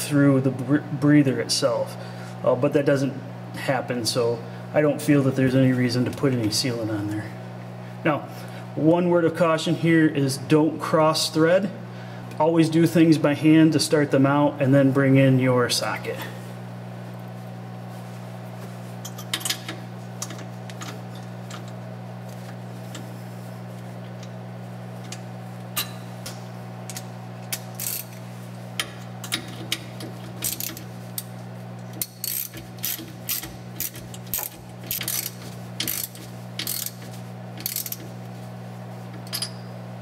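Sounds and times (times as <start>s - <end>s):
hand ratchet clicking: 26.9s - 28.2s, 28.8s - 31.3s, 31.9s - 38.1s.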